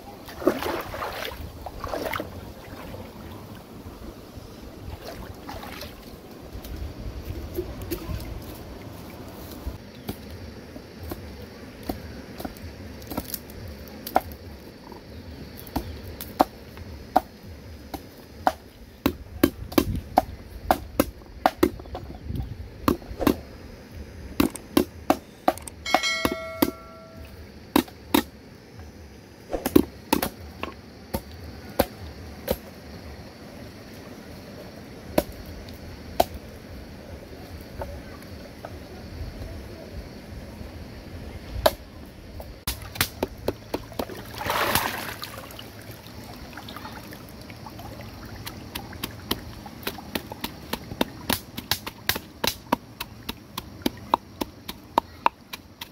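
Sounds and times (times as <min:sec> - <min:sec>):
short ringing tone: 0:25.8 - 0:27.3.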